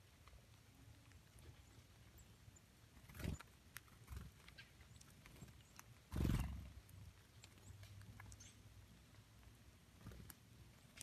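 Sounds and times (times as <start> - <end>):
birds ticking in dry leaves: 0.0 - 11.0
bird wings fluttering: 3.0 - 4.4, 6.1 - 6.6.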